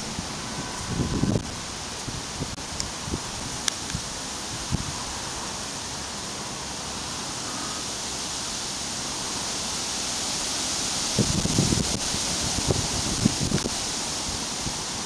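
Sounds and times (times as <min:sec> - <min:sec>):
flowing water hiss: 0:00.0 - 0:15.0.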